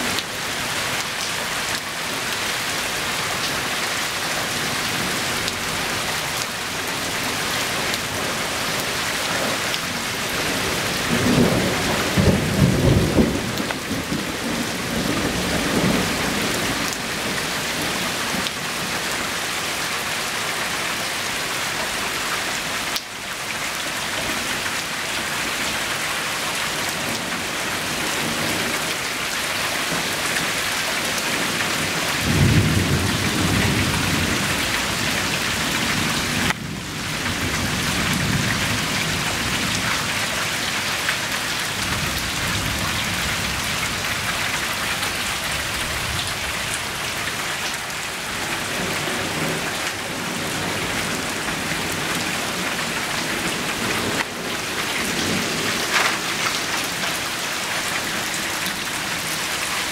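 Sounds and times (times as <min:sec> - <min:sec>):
heavy rain falling: 0:00.0 - 0:59.9
thunder rumbling: 0:09.9 - 0:17.4.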